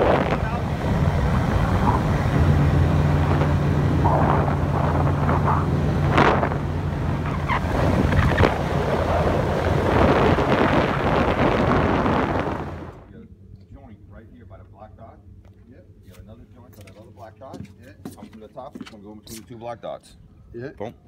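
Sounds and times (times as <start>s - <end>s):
water rushing along hull: 0.0s - 13.0s
wind on microphone: 0.0s - 13.0s
motorboat engine hum: 0.0s - 16.0s.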